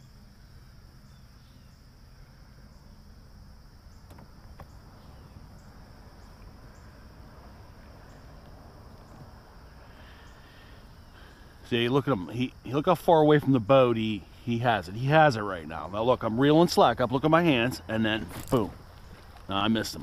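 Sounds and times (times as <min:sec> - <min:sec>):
crickets chirping: 0:00.0 - 0:20.0.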